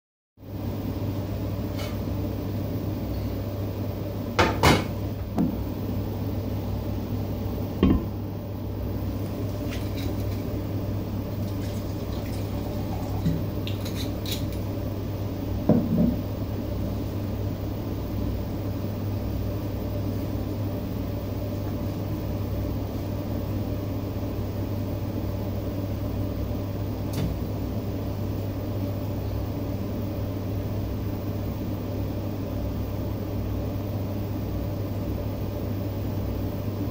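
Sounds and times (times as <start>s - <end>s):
steady low hum: 0.4s - 36.9s
metal container knocking on counter: 7.8s - 8.1s, 15.7s - 16.2s.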